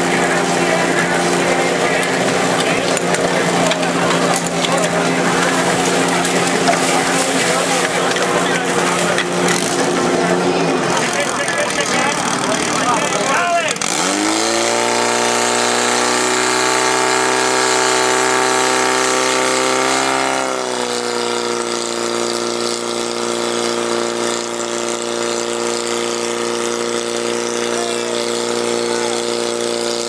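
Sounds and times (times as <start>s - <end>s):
pump engine running at high revs: 0.0s - 30.0s
water jets spraying: 0.0s - 30.0s.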